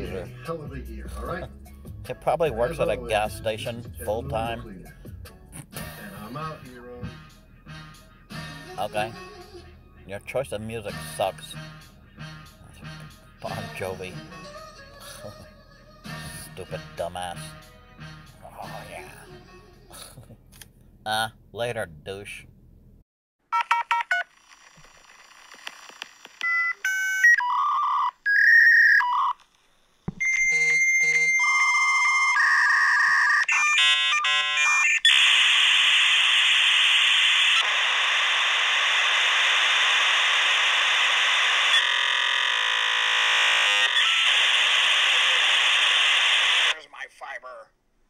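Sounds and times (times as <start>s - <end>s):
electronic beeps: 30.2s - 34.8s.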